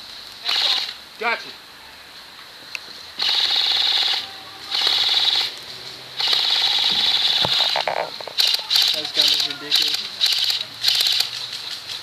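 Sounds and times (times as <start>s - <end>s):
electric gun full-auto fire: 0.5s - 0.9s, 3.2s - 5.5s, 6.2s - 7.7s, 8.4s - 11.3s.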